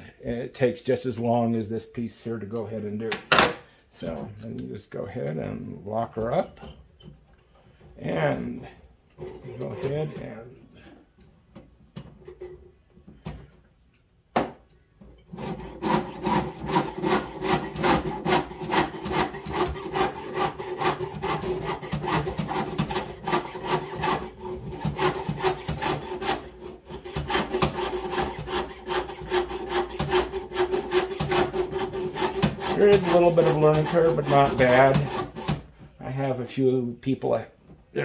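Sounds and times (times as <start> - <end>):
saw cutting sheet metal: 9.2 - 10.5, 15.2 - 35.7.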